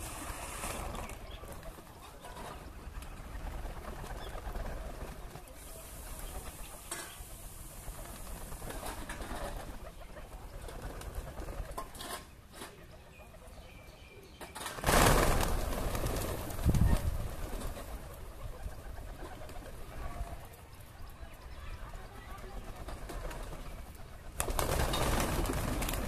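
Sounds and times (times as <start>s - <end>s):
pigeon wings flapping: 0.0s - 6.9s, 7.7s - 12.0s, 14.6s - 20.4s, 22.4s - 26.0s.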